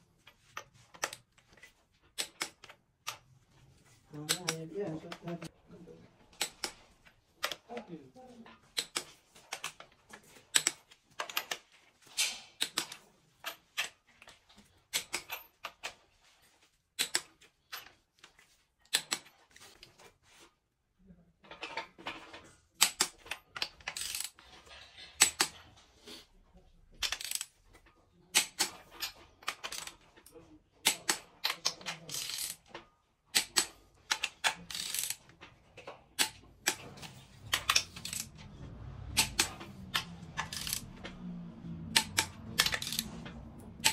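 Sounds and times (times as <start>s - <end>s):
torque wrench clicking: 33.4s - 35.2s, 39.2s - 40.9s, 41.9s - 43.1s.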